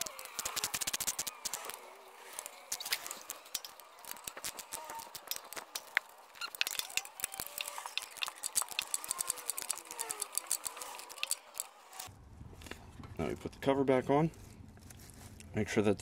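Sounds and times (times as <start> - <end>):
ratchet wrench clicking: 0.0 - 12.1.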